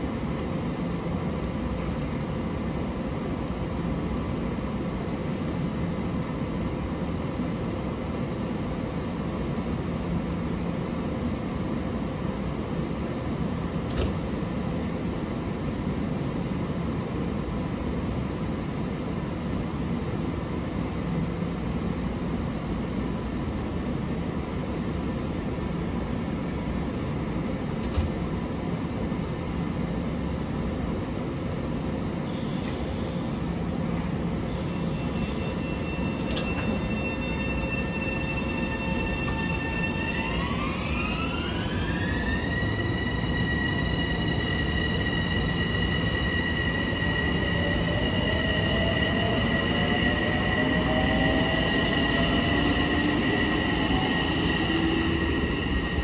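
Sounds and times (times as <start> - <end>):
train wheels rumbling on rails: 32.2 - 56.0.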